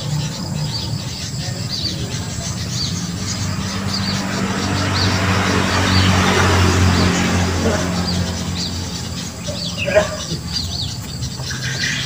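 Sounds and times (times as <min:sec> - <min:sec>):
bird chirping: 0:00.0 - 0:12.0
vehicle engine humming: 0:00.0 - 0:12.0.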